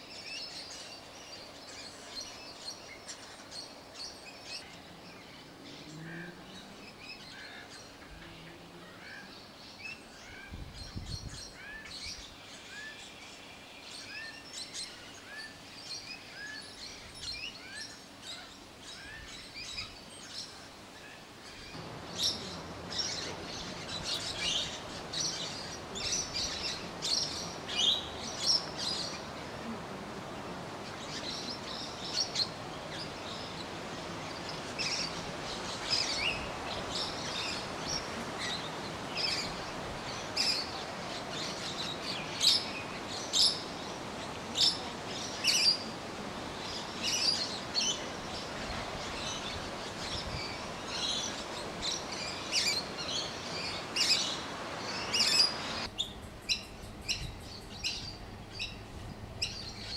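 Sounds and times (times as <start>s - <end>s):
steady outdoor hiss: 0.0s - 59.9s
birds chirping and calling: 21.4s - 59.9s.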